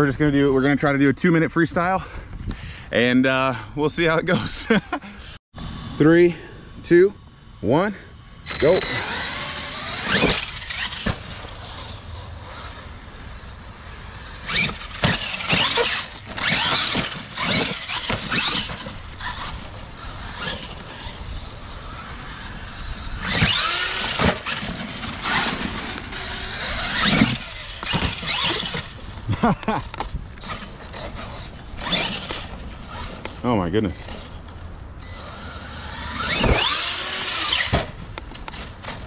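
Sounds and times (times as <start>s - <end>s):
electric motor whining: 8.3s - 39.0s.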